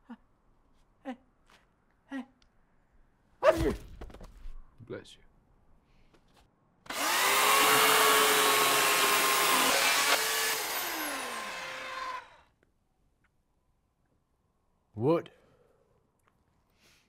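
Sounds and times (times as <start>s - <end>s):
electric chainsaw cutting wood: 6.9s - 12.5s.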